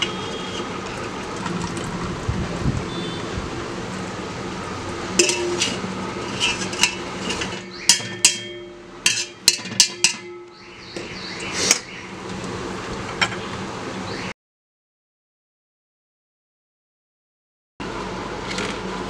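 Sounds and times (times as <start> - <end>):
skimmer clinking on steel pots: 5.1 - 10.5.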